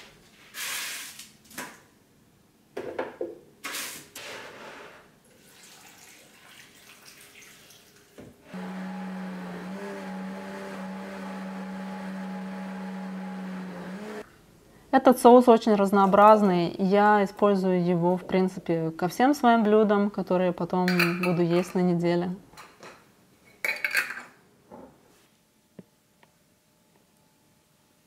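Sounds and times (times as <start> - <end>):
blender running: 8.5 - 14.2.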